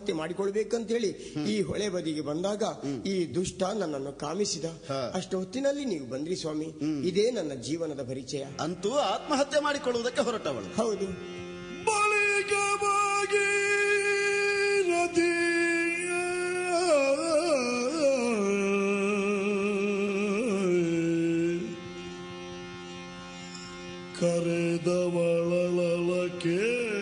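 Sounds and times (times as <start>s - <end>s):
person singing gliding notes: 23.6s - 27.0s.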